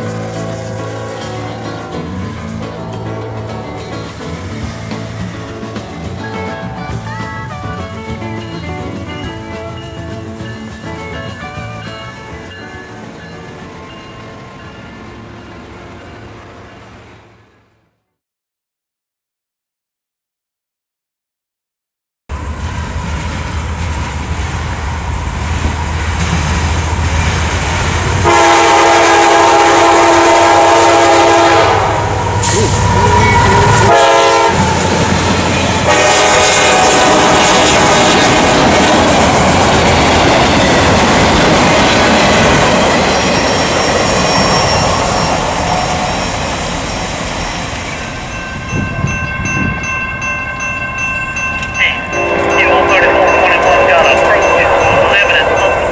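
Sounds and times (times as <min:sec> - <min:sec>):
train wheels rumbling and clattering: 0:00.0 - 0:17.7, 0:22.3 - 0:55.9
train air horn blasts: 0:28.2 - 0:39.2, 0:51.8 - 0:55.9.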